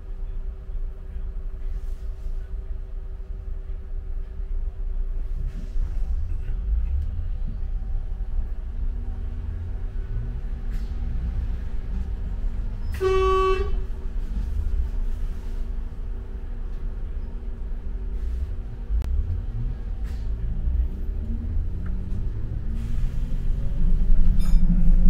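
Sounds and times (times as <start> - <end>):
bus engine rumble: 0.0 - 25.0
road noise: 0.0 - 25.0
vehicle horn toot: 12.8 - 13.9.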